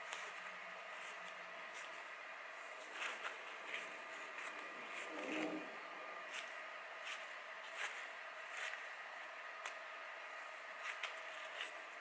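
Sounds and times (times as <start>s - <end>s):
scissors snipping paper: 0.0s - 2.0s, 6.3s - 8.9s, 10.7s - 12.0s.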